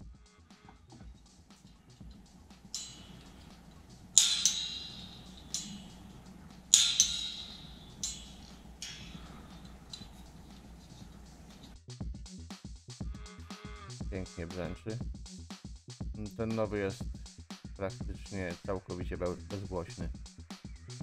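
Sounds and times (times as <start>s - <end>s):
metal springs twanging and buzzing: 1.7s - 11.8s.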